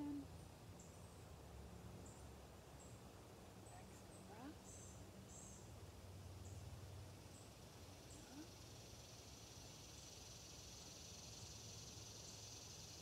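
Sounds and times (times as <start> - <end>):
high-pitched insect drone: 8.0 - 13.0.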